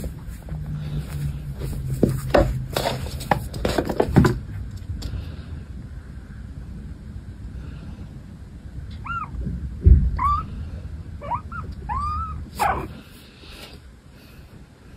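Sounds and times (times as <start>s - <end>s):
kitten mewing: 8.9s - 9.5s, 10.2s - 10.6s, 11.2s - 13.1s
low thump: 9.5s - 10.2s.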